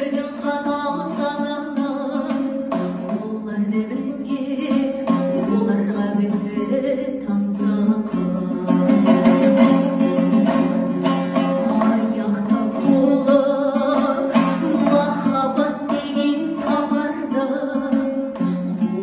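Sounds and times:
strummed two-stringed lute: 0:00.0 - 0:19.0
woman singing: 0:00.0 - 0:19.0.

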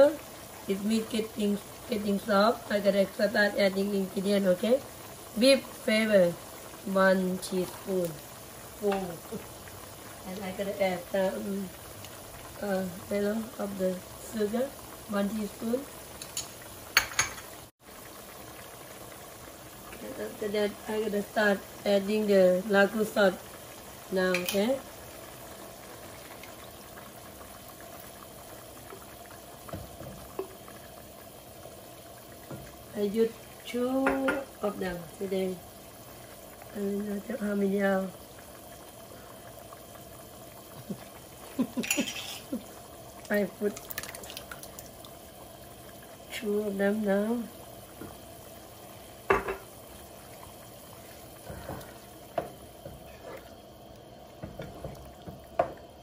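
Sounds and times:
pot simmering and bubbling: 0:00.0 - 0:56.0
sauce pouring into pot: 0:38.1 - 0:46.4
wooden spoon stirring in pot: 0:48.9 - 0:56.0.

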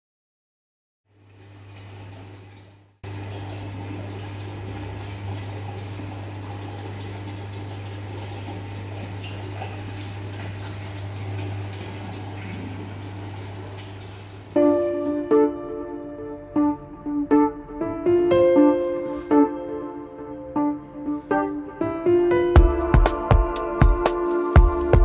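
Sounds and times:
running water rushing: 0:01.1 - 0:16.0
pump humming: 0:01.1 - 0:18.6.

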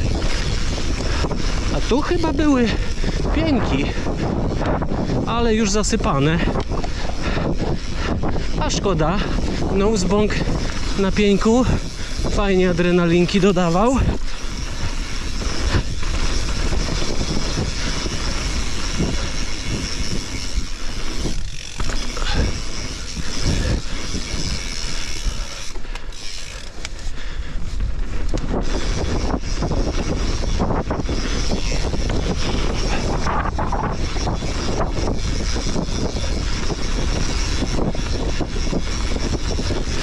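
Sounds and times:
tyres rushing on dirt: 0:00.0 - 0:40.0
wind buffeting microphone: 0:00.0 - 0:40.0
bike knocks and rattles: 0:09.2 - 0:40.0.

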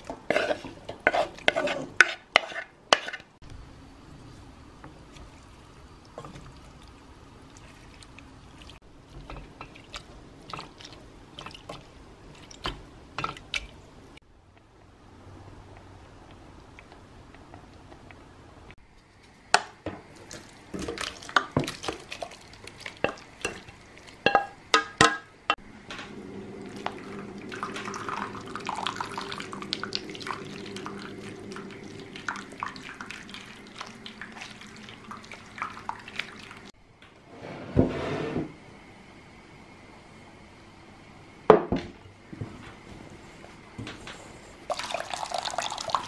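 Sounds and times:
juice pouring through metal sieve: 0:26.5 - 0:36.7, 0:44.7 - 0:46.0.

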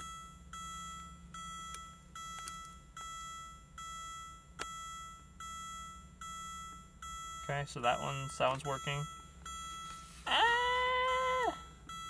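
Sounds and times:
car warning chime dinging: 0:00.0 - 0:12.0.

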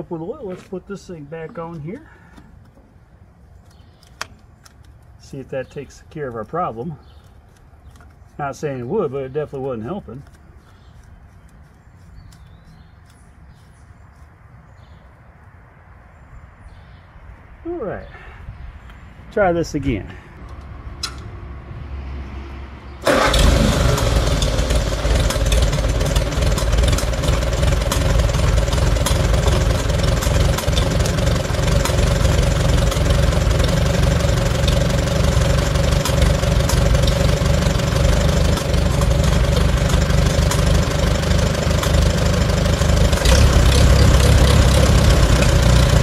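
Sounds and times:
tractor engine starting and running: 0:23.0 - 0:46.0.

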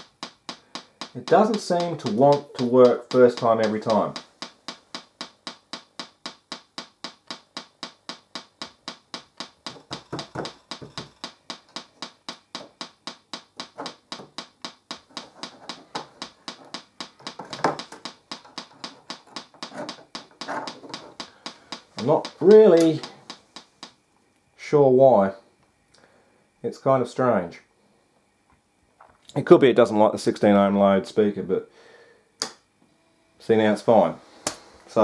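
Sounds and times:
speaker popping: 0:00.0 - 0:24.0.

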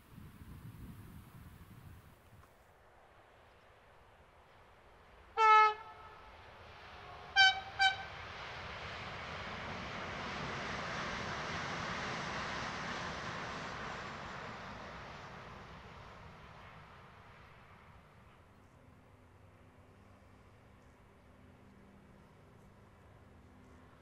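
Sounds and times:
train two-tone horn: 0:05.4 - 0:06.4, 0:07.0 - 0:08.2.

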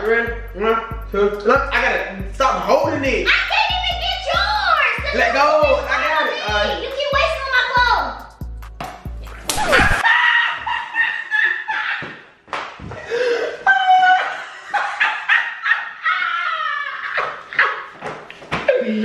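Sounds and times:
people laughing and shrieking: 0:09.5 - 0:12.3, 0:13.2 - 0:17.9.

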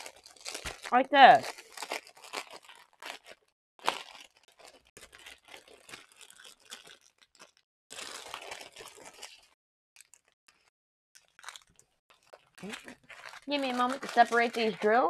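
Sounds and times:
plastic packaging crinkling: 0:00.0 - 0:15.0.

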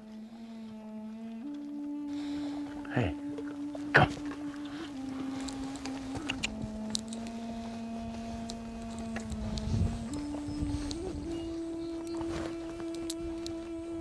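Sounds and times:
low sustained drone note: 0:00.0 - 0:14.0
faint clicks: 0:03.3 - 0:13.8.

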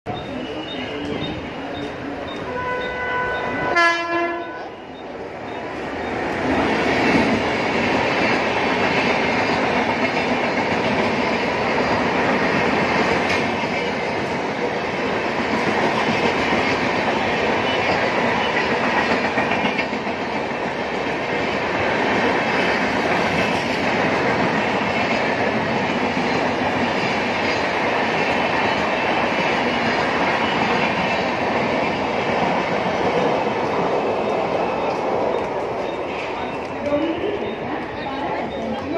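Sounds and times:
train wheels rushing on rails: 0:00.1 - 0:38.9
train horn: 0:02.4 - 0:04.9
clickety-clack over rail joints: 0:05.5 - 0:38.9.

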